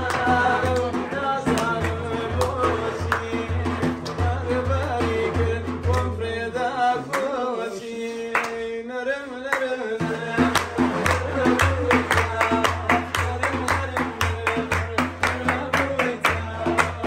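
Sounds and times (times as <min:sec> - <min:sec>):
hands clapping: 0:00.0 - 0:04.4, 0:05.8 - 0:06.2, 0:07.1 - 0:07.4, 0:08.3 - 0:08.7, 0:09.5 - 0:17.0
man singing: 0:00.0 - 0:17.0
low drum beat: 0:10.0 - 0:17.0.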